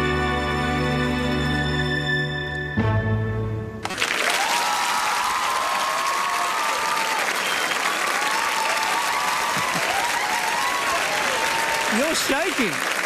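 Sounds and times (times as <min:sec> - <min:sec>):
audience applauding: 0:03.8 - 0:13.0
people cheering: 0:03.8 - 0:13.0.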